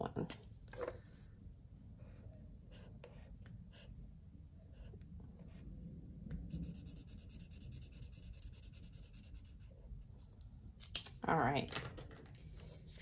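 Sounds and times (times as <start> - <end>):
marker scribbling on paper: 6.5 - 9.7.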